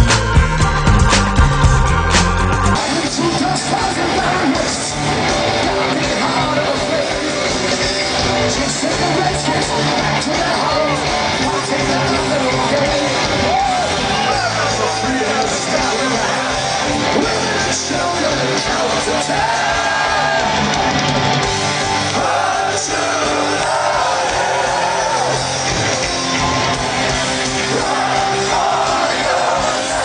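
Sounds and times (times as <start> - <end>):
live rock band with singer: 0.0 - 30.0
audience shouting: 8.9 - 30.0.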